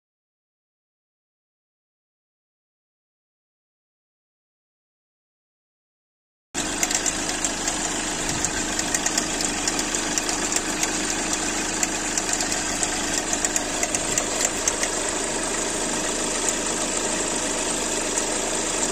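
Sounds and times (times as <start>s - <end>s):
belt drive ticking and rattling: 6.6s - 17.0s
car engine idling: 6.6s - 18.9s.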